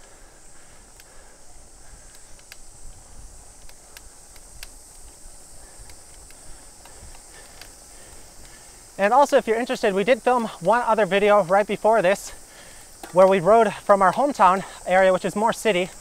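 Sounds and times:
bicycle road rumble: 0.0 - 16.0
cicadas buzzing: 0.0 - 16.0
low wind: 0.0 - 16.0
faint clicks: 0.6 - 9.0.

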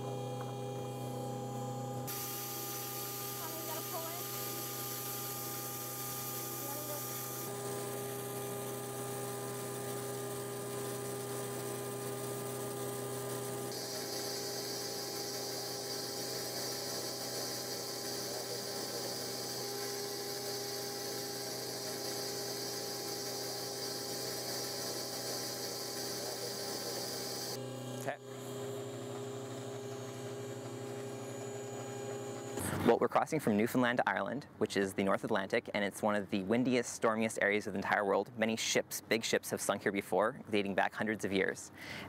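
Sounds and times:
steady hum: 0.0 - 33.0.

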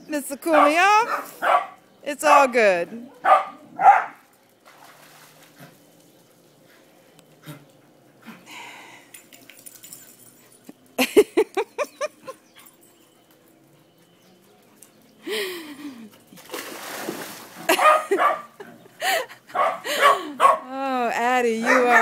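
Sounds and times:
dog barking: 0.6 - 1.8, 3.1 - 4.2, 17.7 - 18.5, 19.5 - 20.7, 21.6 - 22.0.

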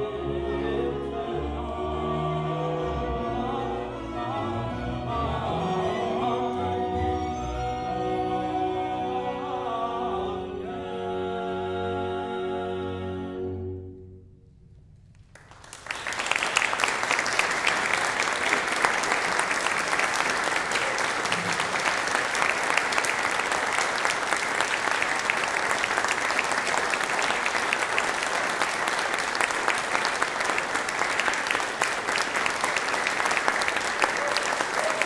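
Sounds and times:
audience applauding: 15.3 - 35.0.

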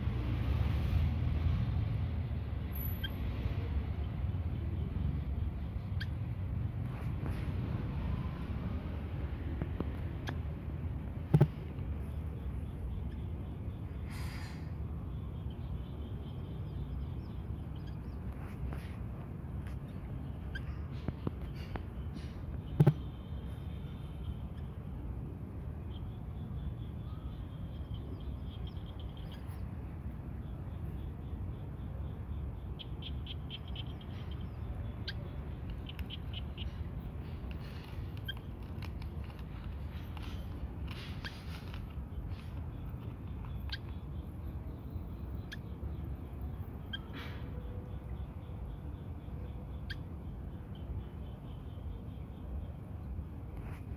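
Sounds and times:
short hissing noise: 14.0 - 14.8.

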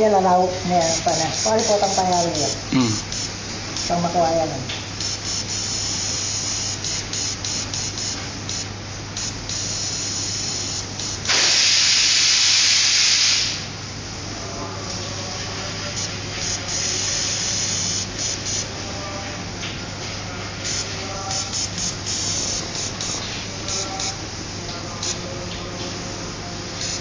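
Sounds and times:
steady low hum: 0.0 - 11.4, 13.5 - 27.0
airbrush hissing: 5.0 - 13.7, 15.8 - 18.7, 20.6 - 24.2.

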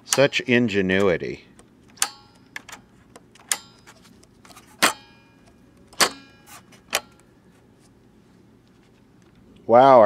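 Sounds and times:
tape recorder mechanism clicks: 0.0 - 7.3.

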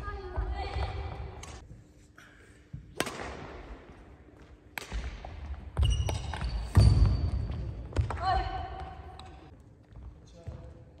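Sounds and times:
racket hitting shuttlecock: 2.9 - 3.7, 4.7 - 5.4
sneakers squeaking: 5.0 - 10.8.

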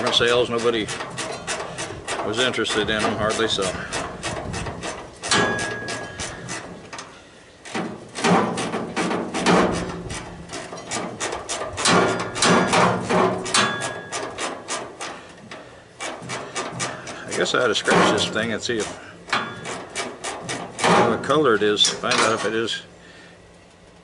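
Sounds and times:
metal panels clanking and rattling: 0.0 - 22.8
metallic ring: 5.2 - 6.6, 11.8 - 14.4, 19.3 - 20.0.

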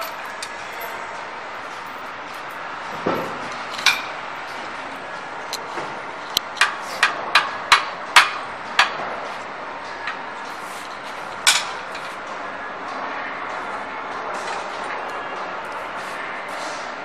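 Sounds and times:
sharp metal knocks and clanks: 6.6 - 9.0.

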